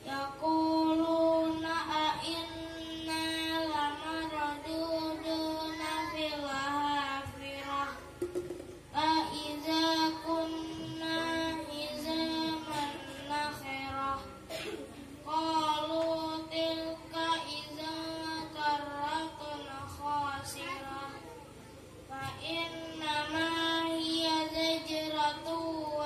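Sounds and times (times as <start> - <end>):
boy chanting melodic recitation: 0.0 - 26.0.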